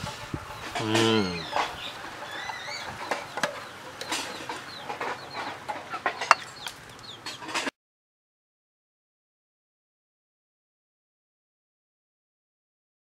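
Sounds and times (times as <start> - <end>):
birds chirping: 0.0 - 7.7
metal ladle clinking against pot: 6.1 - 6.7.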